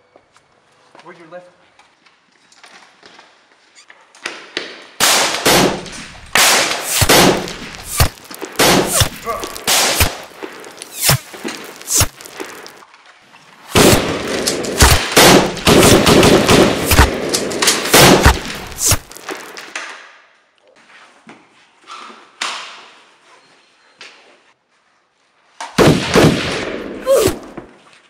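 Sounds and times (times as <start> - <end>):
rapid automatic gunfire: 5.0 - 10.2, 13.8 - 19.0
gunshots: 5.0 - 12.7, 13.7 - 19.3, 25.8 - 27.5.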